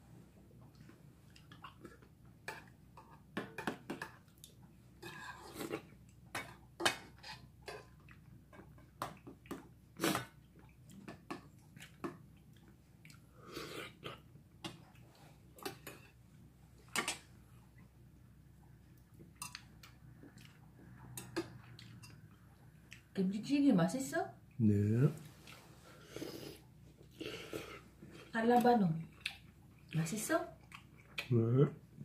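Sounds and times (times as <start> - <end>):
wet eating sounds: 0.6 - 16.1, 18.6 - 23.2, 25.2 - 31.7.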